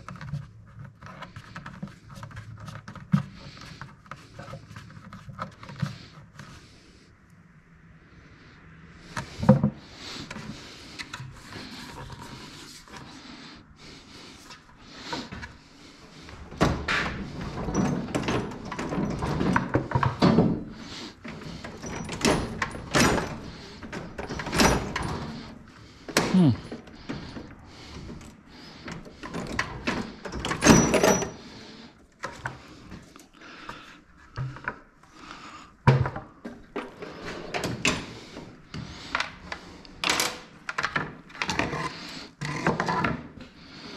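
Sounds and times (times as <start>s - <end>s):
parts knocking and scraping: 0.0s - 6.7s, 9.0s - 35.1s, 35.9s - 43.5s.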